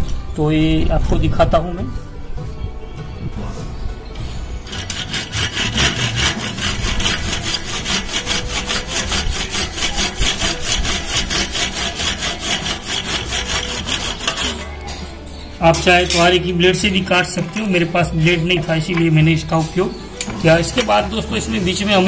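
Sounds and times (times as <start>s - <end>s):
hand saw cutting metal: 4.6s - 18.6s, 20.2s - 22.0s.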